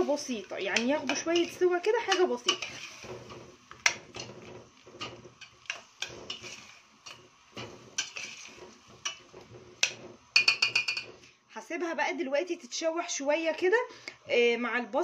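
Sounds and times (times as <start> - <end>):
metal spoon clinking in pot: 9.8 - 11.1.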